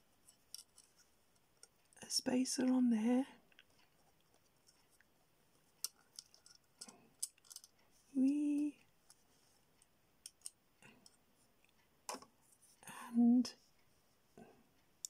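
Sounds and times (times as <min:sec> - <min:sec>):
person humming: 0:08.1 - 0:08.8.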